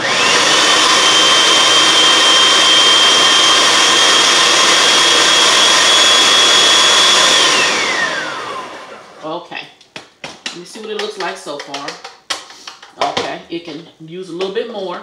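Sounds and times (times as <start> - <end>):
food processor whining: 0.0 - 9.3.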